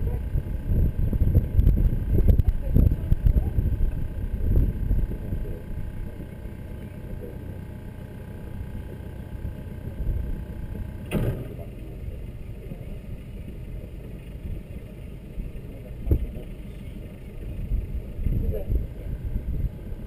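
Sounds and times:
boat engine running at low speed: 0:00.0 - 0:20.0
faint steady whine: 0:00.0 - 0:20.0
wind-like rumble: 0:00.0 - 0:20.0
sharp knock: 0:11.1 - 0:11.6.

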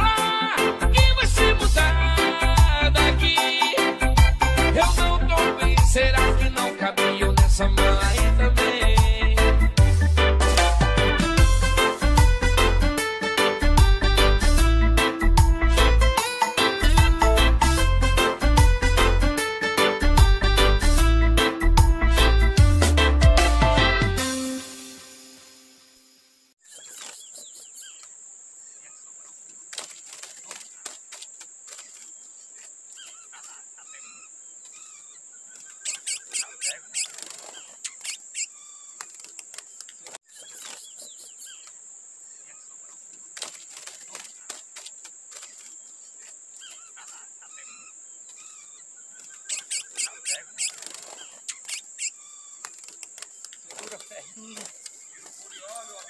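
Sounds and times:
finch singing whistled notes: 0:33.9 - 0:39.0, 0:46.6 - 0:52.6.

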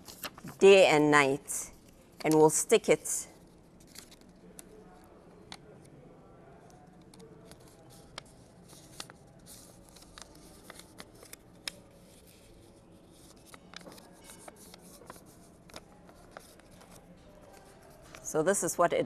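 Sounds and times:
paper rustling: 0:00.0 - 0:00.6, 0:07.5 - 0:18.3.

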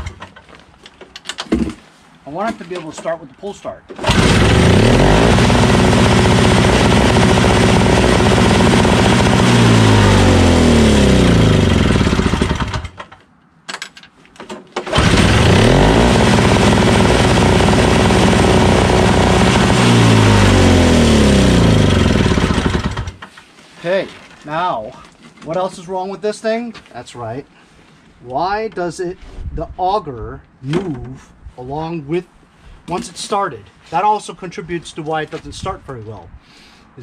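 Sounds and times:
snowblower engine running: 0:04.0 - 0:12.9, 0:14.9 - 0:23.2.

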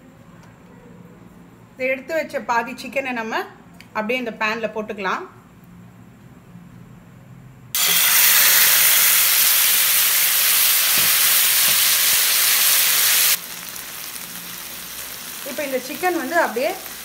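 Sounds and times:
curry sizzling in hot oil: 0:07.8 - 0:17.0.

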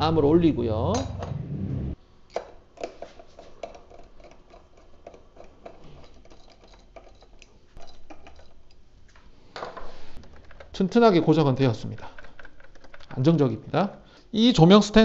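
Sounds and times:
low steady hum: 0:00.0 - 0:02.0.

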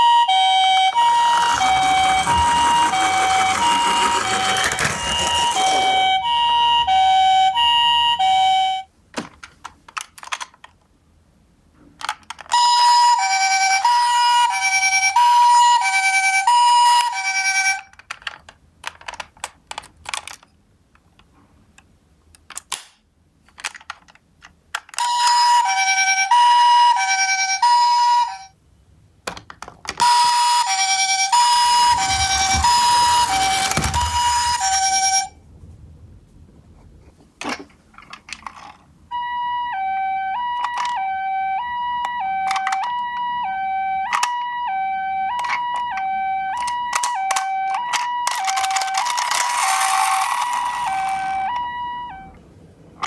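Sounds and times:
toy electronic two-tone siren: 0:00.0 - 0:08.9, 0:12.5 - 0:17.9, 0:25.0 - 0:28.6, 0:30.0 - 0:35.4, 0:39.1 - 0:52.4
clicks and taps of toy cars: 0:09.2 - 0:10.9, 0:11.8 - 0:12.6, 0:17.0 - 0:25.4, 0:29.2 - 0:30.7, 0:40.5 - 0:41.1, 0:42.0 - 0:43.3, 0:44.0 - 0:44.5, 0:45.3 - 0:51.6.

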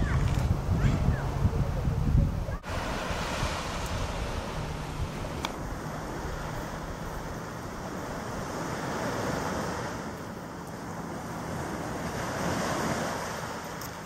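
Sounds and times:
wind buffeting microphone: 0:00.0 - 0:10.5
surf on sandy beach: 0:00.0 - 0:14.0.

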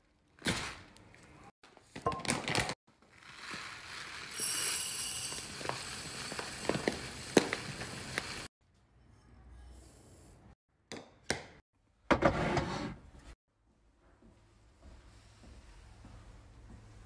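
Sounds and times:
rice pouring into glass jar: 0:03.1 - 0:08.5.

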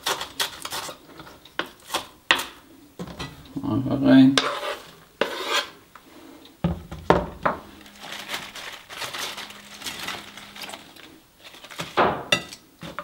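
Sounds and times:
lettuce leaves rustling: 0:07.6 - 0:12.0.

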